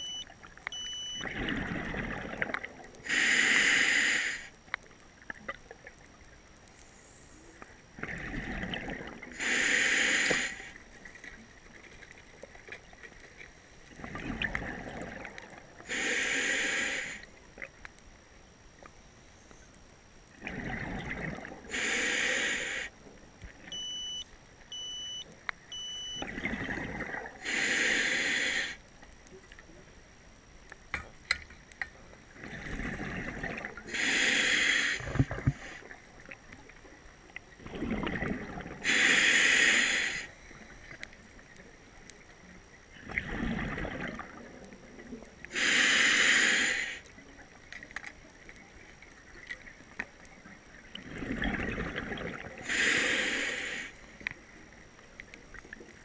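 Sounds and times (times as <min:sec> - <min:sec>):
short electronic beeps: 0:00.0 - 0:01.3, 0:23.7 - 0:26.3
exhaled bubbles gushing: 0:01.2 - 0:03.0, 0:08.0 - 0:09.4, 0:14.0 - 0:15.8, 0:20.4 - 0:21.7, 0:26.2 - 0:27.5, 0:32.4 - 0:34.0, 0:37.6 - 0:39.0, 0:43.0 - 0:45.2, 0:50.8 - 0:52.8
regulator inhale hiss: 0:03.0 - 0:04.6, 0:09.3 - 0:10.8, 0:15.8 - 0:17.3, 0:21.7 - 0:23.0, 0:27.4 - 0:28.8, 0:33.9 - 0:35.9, 0:38.8 - 0:41.0, 0:45.5 - 0:47.1, 0:52.6 - 0:54.2.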